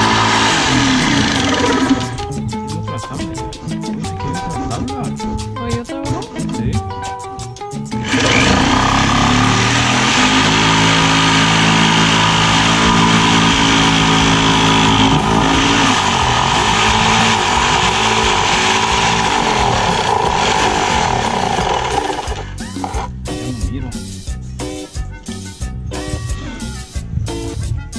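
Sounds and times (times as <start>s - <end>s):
power tool running on metal: 0.0s - 2.2s, 8.0s - 23.1s.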